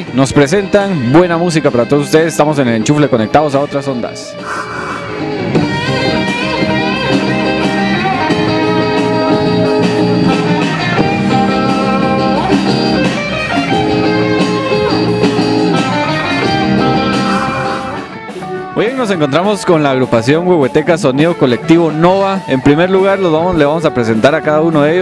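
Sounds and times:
electric bass: 0.0s - 18.8s
electric guitars: 0.0s - 25.0s.

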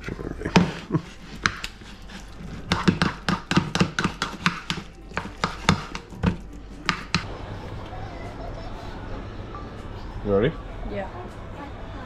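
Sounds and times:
knife chopping on cutting board: 2.7s - 7.3s.

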